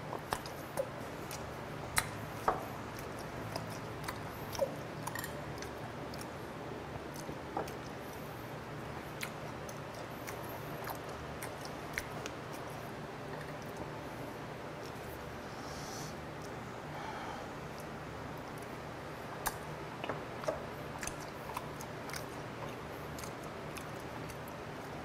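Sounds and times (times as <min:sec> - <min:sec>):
steady low hum: 0:00.0 - 0:25.0
person chewing wet mouth sounds: 0:00.1 - 0:06.4, 0:07.1 - 0:14.1, 0:17.7 - 0:25.0.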